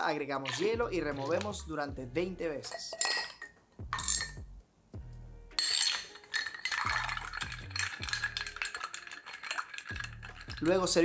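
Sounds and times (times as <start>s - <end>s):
background music with steady beat: 0.0s - 11.0s
ice cube clinking in glass: 0.4s - 1.6s, 2.6s - 4.4s, 5.6s - 11.0s
bar spoon stirring ice: 5.6s - 11.0s.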